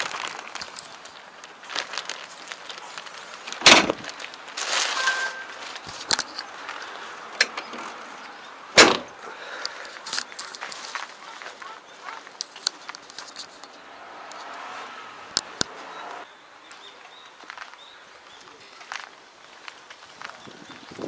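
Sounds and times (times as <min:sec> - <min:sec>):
light clicks and rustling: 0:05.6 - 0:08.0, 0:09.6 - 0:14.5.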